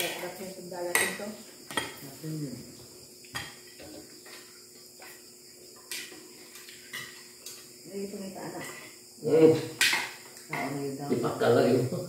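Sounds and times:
plates and spoons clinking: 0.9s - 2.0s, 3.3s - 5.2s, 5.8s - 7.7s.

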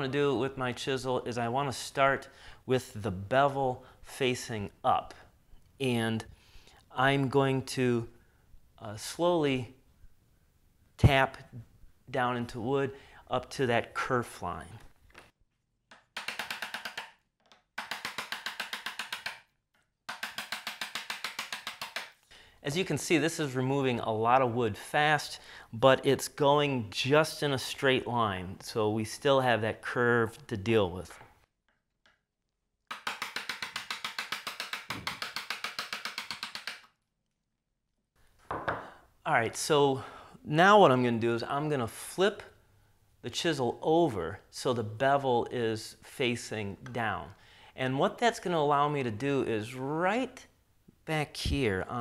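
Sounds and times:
hammer tapping chisel into wood: 15.9s - 19.4s, 20.1s - 22.1s, 32.9s - 36.9s
chisel tapped into wood: 38.5s - 38.9s.

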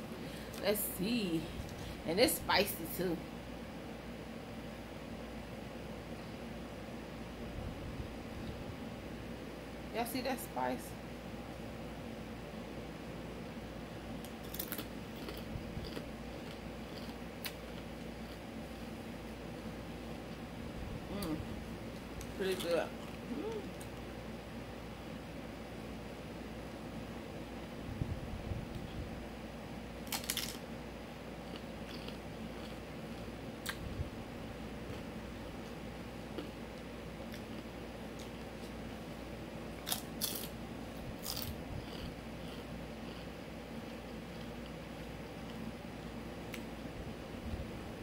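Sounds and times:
low room hum: 0.0s - 48.0s
chip crunching: 14.2s - 20.4s, 30.0s - 30.7s, 31.4s - 33.8s, 39.8s - 40.6s, 41.2s - 45.6s.

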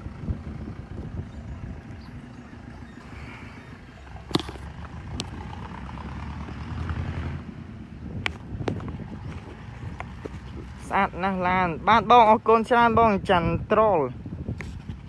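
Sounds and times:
low outdoor rumble: 0.0s - 15.0s
sharp clicks or knocks: 4.3s - 5.4s.

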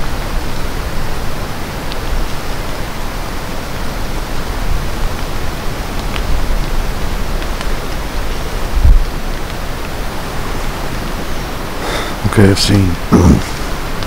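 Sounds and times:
rain falling on leaves: 0.0s - 14.0s.

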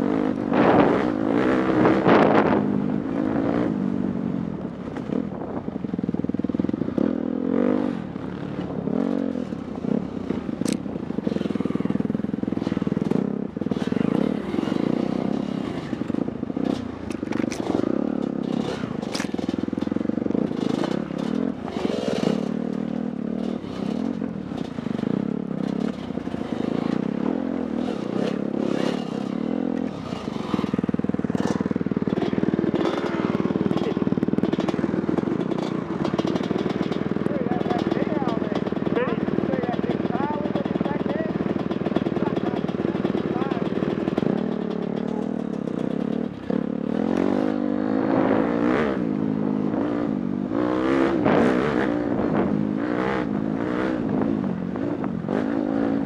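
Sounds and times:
dirt bike engine revving: 0.0s - 4.2s, 6.4s - 56.0s
bike clattering over rough ground: 9.4s - 47.5s.

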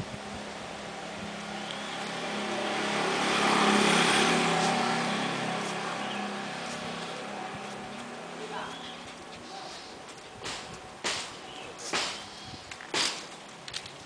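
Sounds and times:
motor vehicle passing by: 0.0s - 12.3s.

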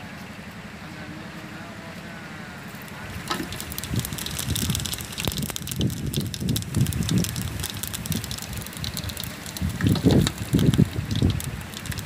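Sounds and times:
wood fire crackling: 2.6s - 12.0s
hot oil sizzling: 2.7s - 12.0s
wind on microphone: 3.1s - 12.0s.

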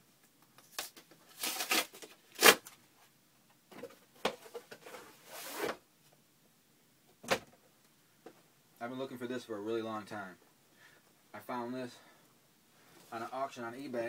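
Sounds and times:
cardboard box tearing and rustling: 1.3s - 2.6s.

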